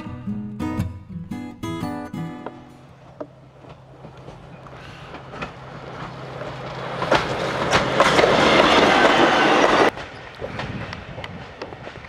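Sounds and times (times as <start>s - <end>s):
diesel railcar running: 2.4s - 12.0s
wheels clacking over rail joints: 2.4s - 12.0s.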